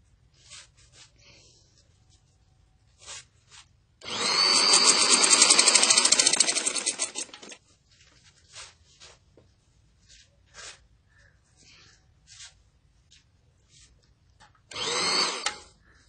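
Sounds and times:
sewing machine stitching: 4.0 - 7.6.

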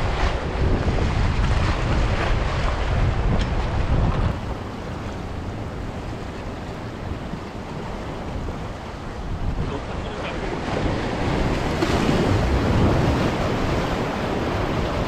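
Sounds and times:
waves washing ashore: 0.0 - 15.0
wind buffeting the microphone: 0.0 - 15.0.

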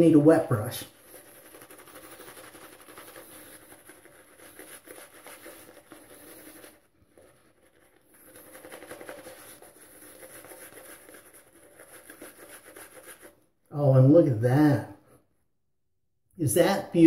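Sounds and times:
shaving brush on wet stubble: 0.1 - 13.4.

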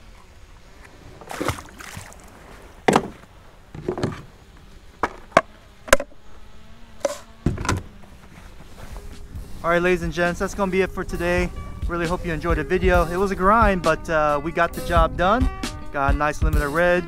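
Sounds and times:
fish splashing into water: 1.2 - 2.9
fishing gear knocking on kayak: 2.9 - 3.2.

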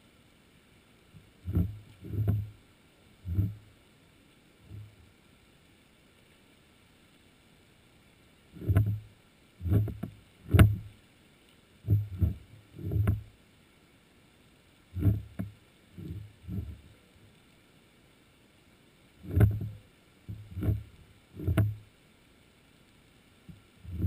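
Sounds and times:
underwater low thumps and knocks: 1.2 - 2.6, 3.2 - 3.7, 4.7 - 5.0, 8.6 - 11.0, 11.9 - 13.3, 15.0 - 16.9, 19.2 - 21.9, 23.5 - 24.0.

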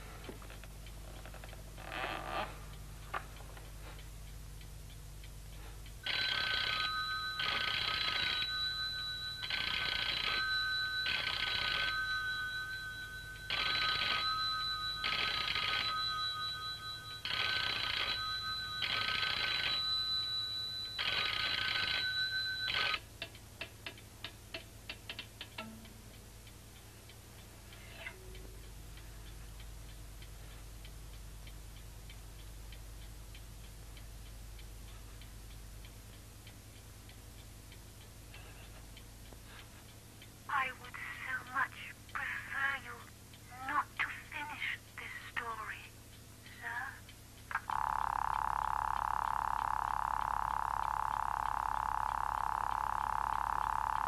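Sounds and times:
faint ticking: 0.0 - 54.0
telephone bell ringing: 6.1 - 23.0, 47.7 - 54.0.

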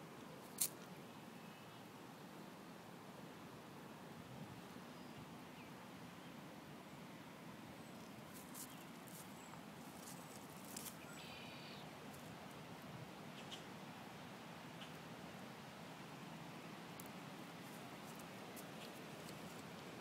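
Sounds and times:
faint steady hiss: 0.0 - 20.0
soft clicks and rustles: 8.3 - 9.3, 9.9 - 11.0, 17.0 - 19.9.

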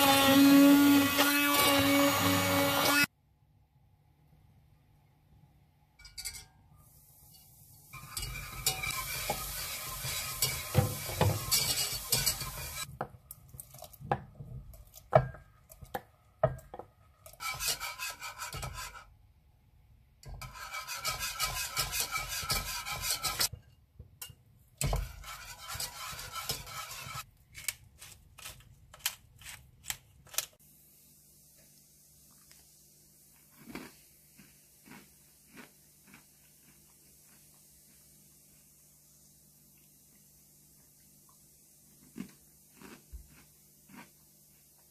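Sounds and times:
whisk scraping saucepan: 8.0 - 12.9, 13.6 - 19.1, 20.2 - 23.8, 24.8 - 27.3
utensils clinking: 10.4 - 12.9.

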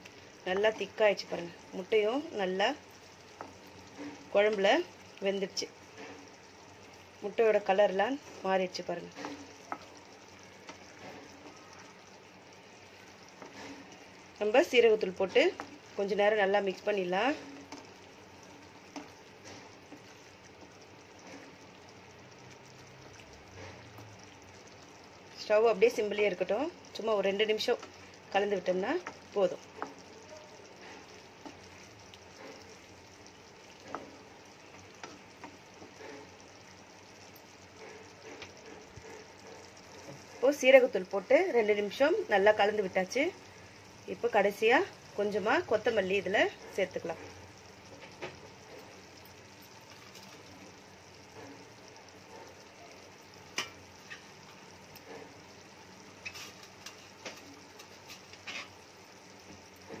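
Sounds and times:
curry sizzling in a pan: 0.0 - 60.0
gravy simmering with pops: 0.0 - 60.0
spatula scraping and tapping pan: 56.2 - 58.8.

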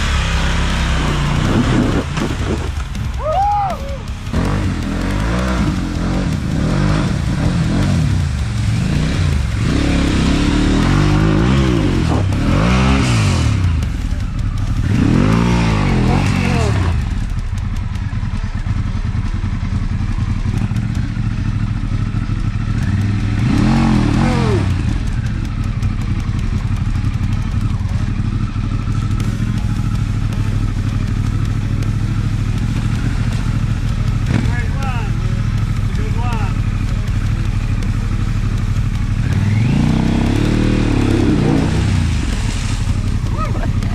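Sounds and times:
motorcycle engine revving: 0.0 - 43.9
water splashing around wheels: 0.0 - 43.9.

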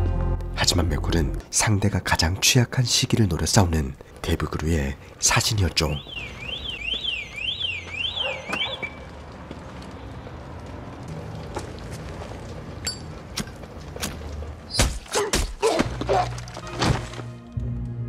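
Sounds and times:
car alarm wailing: 5.8 - 9.1.

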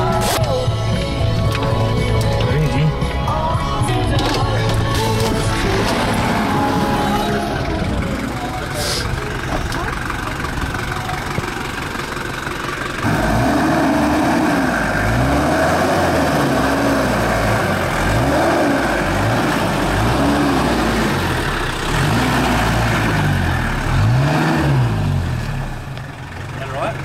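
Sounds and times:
off-road vehicle engine revving: 0.0 - 27.0.

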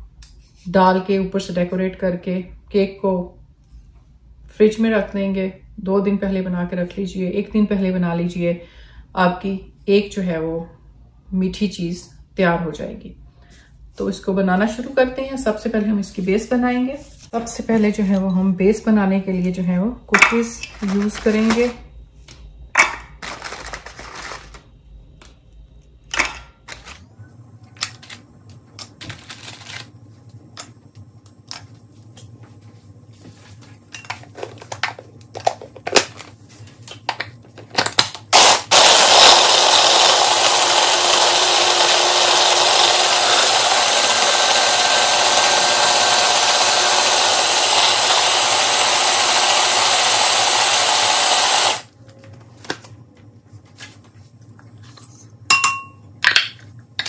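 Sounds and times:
electric chopper grinding: 38.4 - 51.9.

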